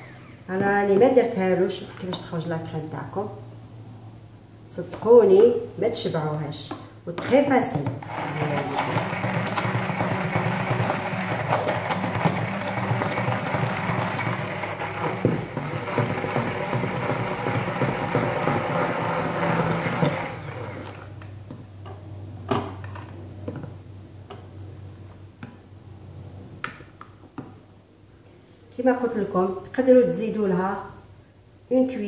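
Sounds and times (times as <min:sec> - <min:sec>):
hand blender whirring: 0:08.0 - 0:21.2.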